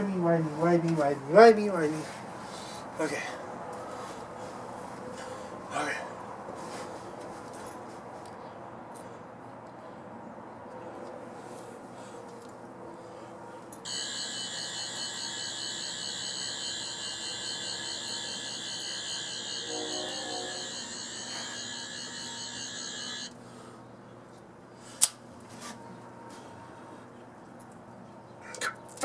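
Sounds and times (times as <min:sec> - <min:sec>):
toy screwdriver electronic whine: 0:13.9 - 0:23.4.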